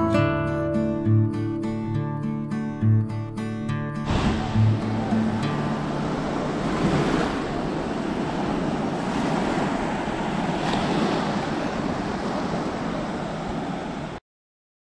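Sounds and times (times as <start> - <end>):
waves breaking on beach: 4.0 - 14.2.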